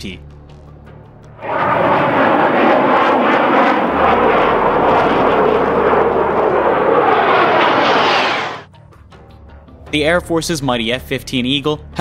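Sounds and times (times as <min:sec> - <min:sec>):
jet engine roar: 0:01.4 - 0:08.7.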